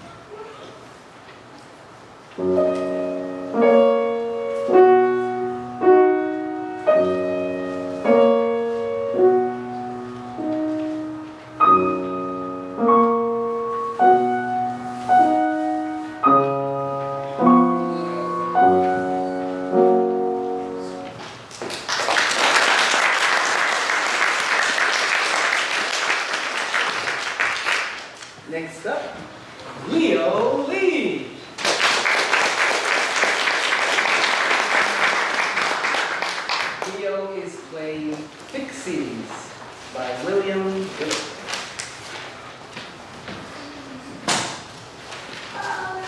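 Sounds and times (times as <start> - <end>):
slow piano piece: 2.1 - 21.9
audience applause: 21.6 - 28.2, 31.6 - 37.0.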